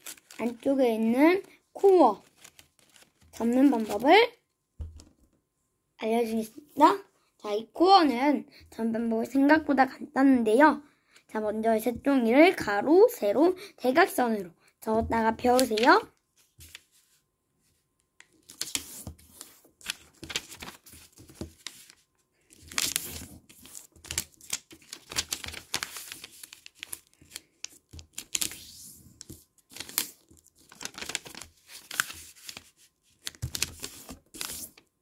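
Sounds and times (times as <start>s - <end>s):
paper rustling and crinkling: 0.0s - 4.1s, 15.4s - 17.2s, 18.3s - 34.9s.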